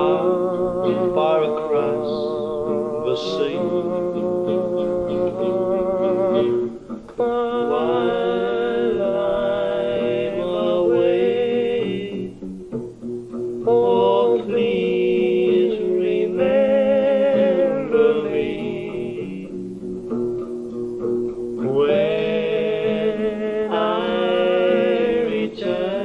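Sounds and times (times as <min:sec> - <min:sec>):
man singing: 0:00.0 - 0:12.4, 0:13.6 - 0:19.6, 0:21.6 - 0:26.0
guitar accompaniment: 0:00.0 - 0:26.0.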